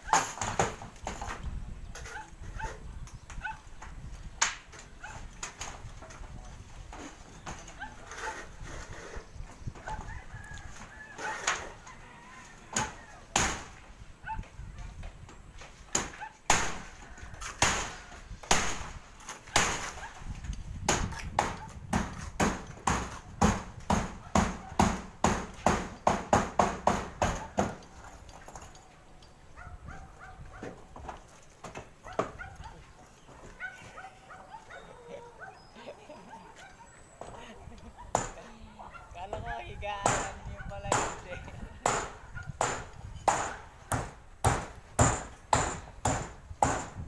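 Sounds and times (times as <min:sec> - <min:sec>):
hammer striking metal roof sheet: 0:20.8 - 0:27.8, 0:40.0 - 0:47.0.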